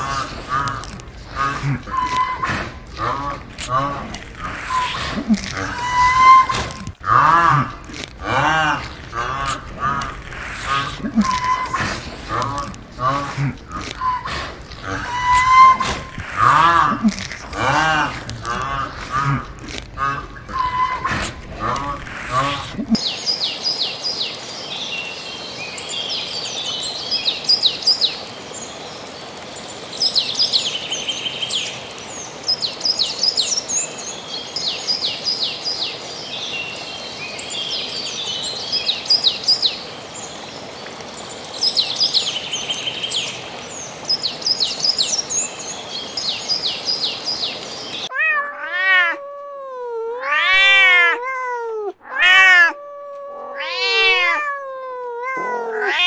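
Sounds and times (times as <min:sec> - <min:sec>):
small birds chirping: 0:00.0 - 0:48.7
steady outdoor hiss: 0:00.0 - 0:56.0
cat meowing: 0:48.1 - 0:56.0.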